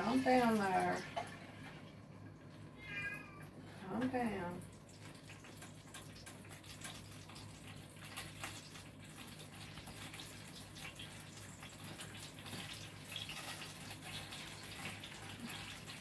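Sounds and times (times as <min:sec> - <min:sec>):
butter crackling and bubbling: 0:04.6 - 0:16.0.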